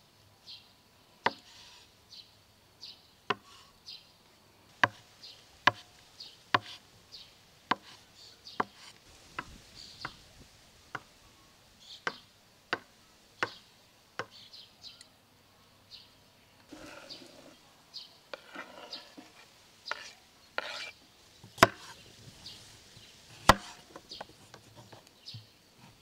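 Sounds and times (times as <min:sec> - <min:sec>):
knife chopping on wooden board: 0:04.8 - 0:05.0, 0:06.6 - 0:06.8, 0:07.7 - 0:08.0, 0:21.6 - 0:22.0, 0:23.4 - 0:23.9.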